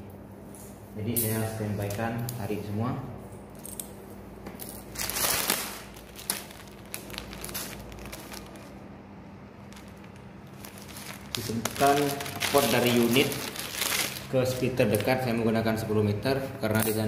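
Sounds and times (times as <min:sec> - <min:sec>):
plastic bag crinkling: 0:04.6 - 0:09.0, 0:09.6 - 0:15.4.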